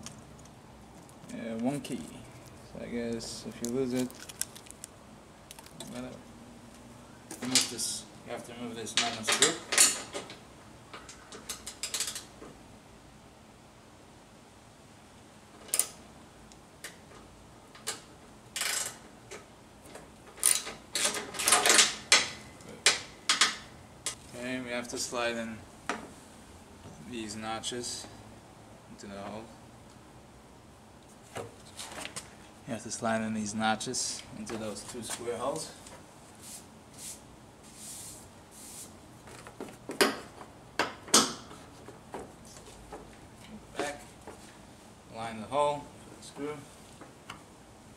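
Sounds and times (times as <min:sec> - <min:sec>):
plastic rustling: 0:01.0 - 0:06.0.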